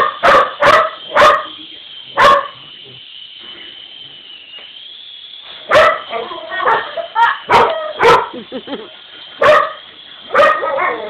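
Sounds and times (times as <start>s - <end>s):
dog barking: 0.0s - 1.5s, 2.2s - 2.7s, 5.7s - 8.4s, 9.4s - 11.0s
toy helicopter motor whine: 0.0s - 11.0s.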